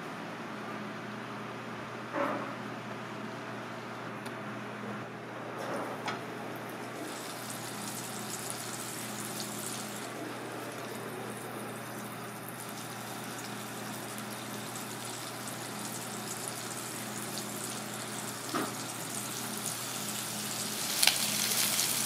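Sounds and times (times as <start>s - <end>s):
hot oil sizzling and crackling: 7.0s - 22.0s.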